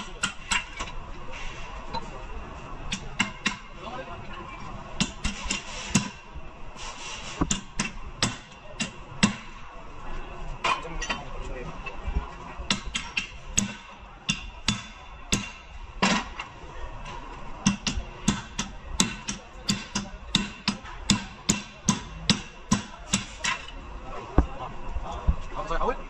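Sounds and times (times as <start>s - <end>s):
hammer striking metal: 0.1s - 0.9s, 5.0s - 6.2s, 7.4s - 9.6s, 12.7s - 16.3s, 17.6s - 23.7s.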